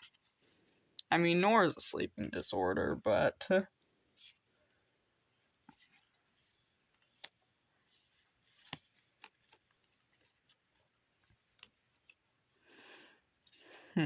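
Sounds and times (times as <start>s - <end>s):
cards sliding and flicking: 5.7s - 12.1s.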